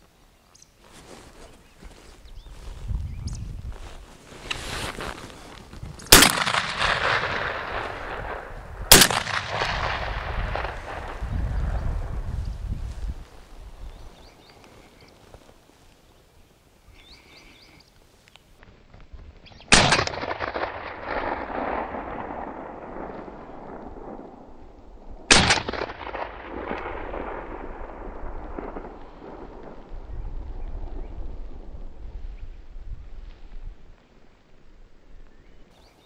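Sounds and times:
shotgun shots: 0:06.1 - 0:11.8, 0:19.7 - 0:23.1, 0:25.3 - 0:27.5
rolling echo of gunshots: 0:06.1 - 0:12.2, 0:19.7 - 0:24.4, 0:25.3 - 0:29.6.

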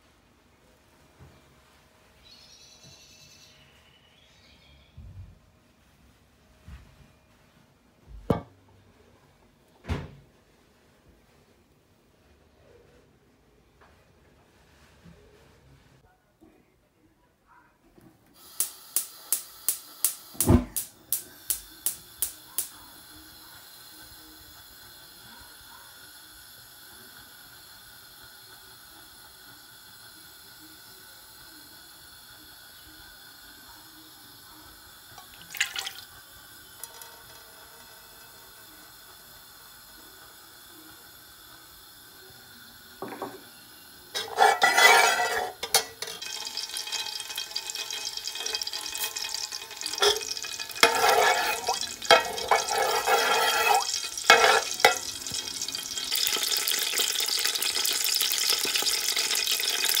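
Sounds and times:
seeds sizzling in hot oil: 0:18.4 - 1:00.0.

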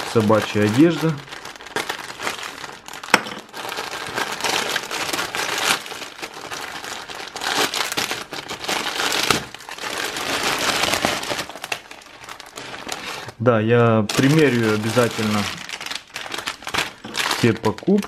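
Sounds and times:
plastic mailer crinkling: 0:00.0 - 0:13.4, 0:14.0 - 0:18.0.

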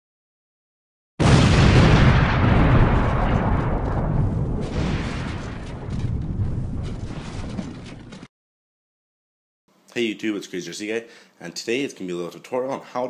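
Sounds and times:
explosion roar of flames: 0:01.2 - 0:08.3.

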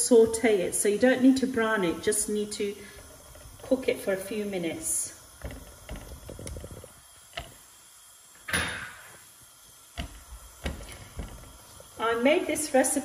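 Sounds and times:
spoon knocking on pan: 0:10.0 - 0:11.5.

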